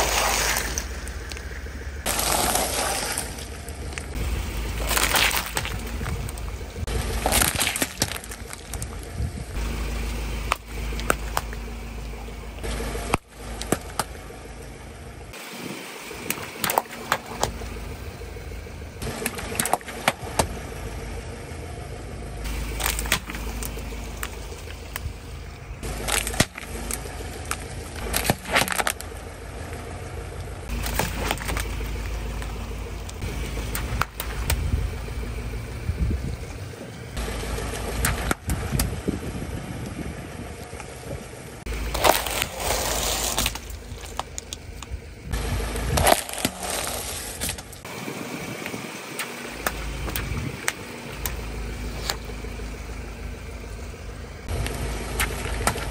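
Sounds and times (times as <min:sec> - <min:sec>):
plastic cups cracking and popping: 0:00.0 - 0:09.0, 0:22.5 - 0:25.2, 0:25.8 - 0:29.2, 0:30.7 - 0:34.6, 0:41.7 - 0:44.9, 0:45.8 - 0:47.9, 0:54.5 - 0:55.9
wet squashing of beads: 0:00.0 - 0:09.0, 0:25.8 - 0:29.2
car engine and tires rumbling: 0:00.0 - 0:55.9.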